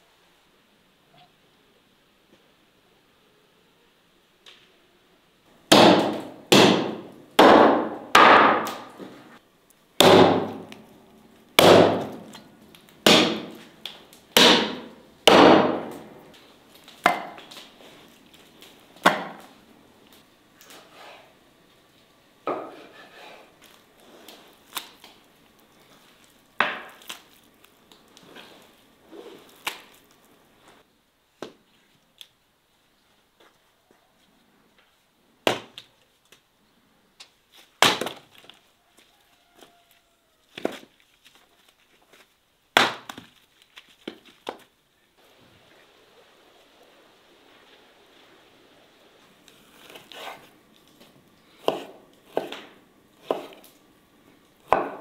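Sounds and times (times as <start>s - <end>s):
axe chopping wood: 5.7s - 9.1s, 10.0s - 10.8s, 11.6s - 12.4s, 13.0s - 16.2s, 17.0s - 17.5s, 19.0s - 19.5s, 26.6s - 27.2s, 35.4s - 35.8s, 37.8s - 38.2s, 42.8s - 43.3s, 51.6s - 53.7s, 54.7s - 55.0s.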